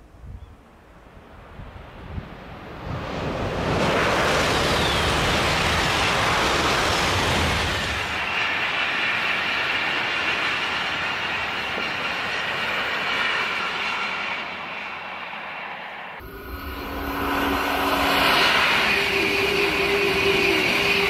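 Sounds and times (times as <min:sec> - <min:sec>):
distant high-speed train: 0:00.0 - 0:21.0
high-speed train rushing past: 0:01.3 - 0:21.0
faint high whine: 0:14.4 - 0:21.0.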